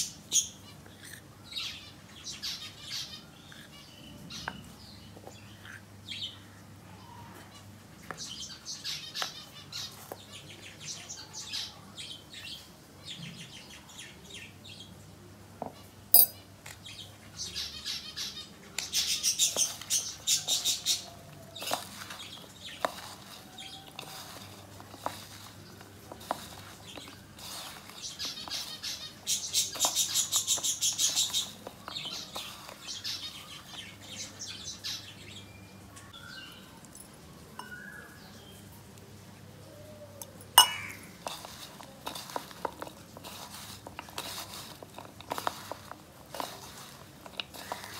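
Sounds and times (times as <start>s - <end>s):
hands tossing gourd in flour: 19.4s - 33.8s, 40.6s - 47.9s.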